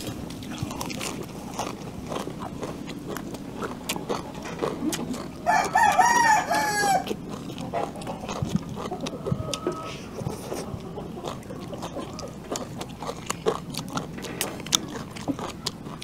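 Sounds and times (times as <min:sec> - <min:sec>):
chewing raw vegetables: 0:00.0 - 0:16.0
rooster crowing: 0:05.4 - 0:07.2, 0:09.2 - 0:10.0.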